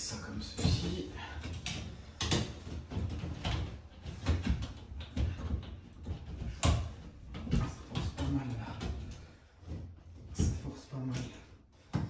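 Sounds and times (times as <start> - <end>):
clicks and knocks of metal fittings: 0.4 - 12.0.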